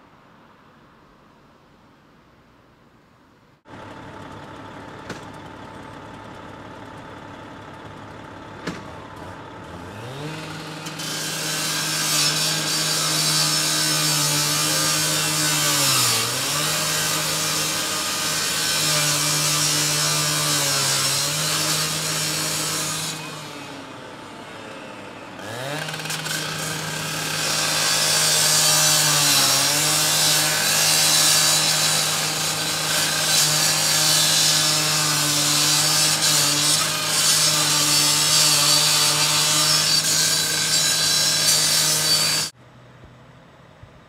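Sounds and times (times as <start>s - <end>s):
power saw cutting metal: 8.6s - 42.6s.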